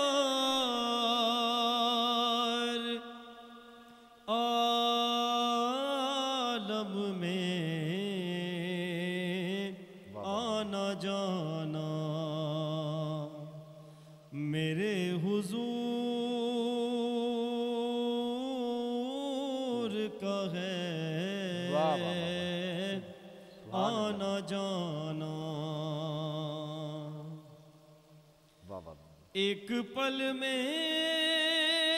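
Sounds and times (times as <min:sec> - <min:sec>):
man singing devotional poem: 0:00.0 - 0:31.9
singer breathing: 0:03.8 - 0:04.2, 0:13.8 - 0:14.3, 0:23.2 - 0:23.7.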